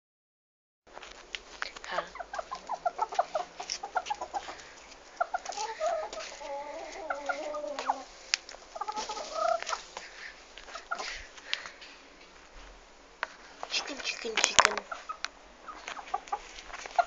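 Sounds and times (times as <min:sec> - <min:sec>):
chicken clucking: 0:01.9 - 0:11.4, 0:13.8 - 0:17.0.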